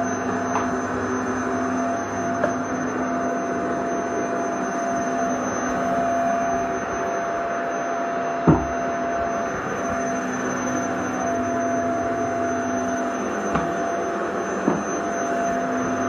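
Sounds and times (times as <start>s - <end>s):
vacuum cleaner running: 0.0s - 16.0s
brief thump: 8.5s - 8.7s.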